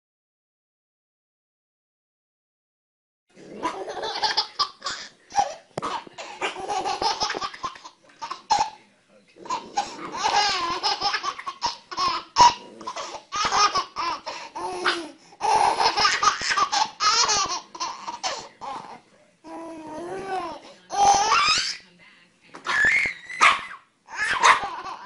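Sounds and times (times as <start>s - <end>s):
baby laughing: 3.6s - 8.8s, 9.4s - 21.8s, 22.6s - 25.0s.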